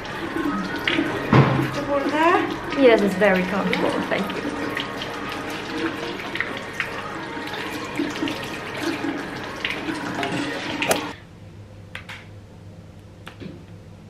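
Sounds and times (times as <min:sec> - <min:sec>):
water running from tap: 0:00.0 - 0:11.2.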